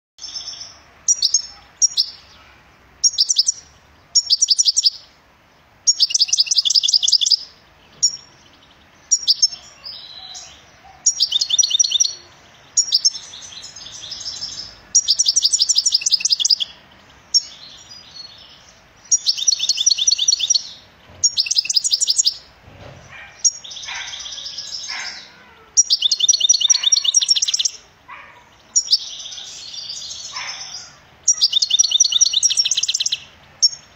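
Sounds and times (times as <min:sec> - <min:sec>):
goldfinch singing: 0:00.2 - 0:05.2, 0:05.8 - 0:33.9.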